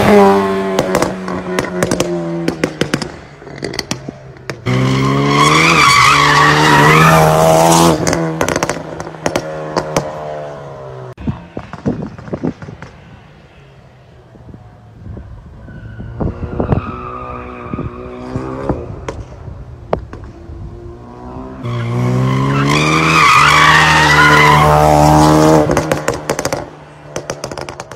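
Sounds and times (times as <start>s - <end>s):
exhaust pops: 0.7s - 4.7s
tyre squeal: 15.6s - 18.5s.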